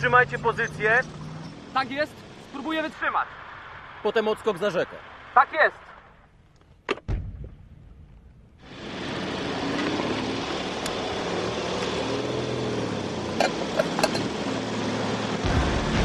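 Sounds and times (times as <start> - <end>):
tank engines running: 0.0 - 6.7, 8.6 - 16.0
steady rumbling noise: 0.0 - 16.0
sharp metallic clanks: 13.4 - 14.4.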